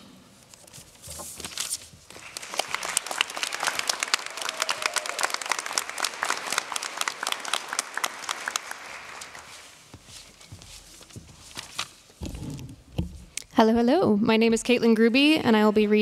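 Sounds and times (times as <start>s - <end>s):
audience applauding: 2.1s - 10.0s.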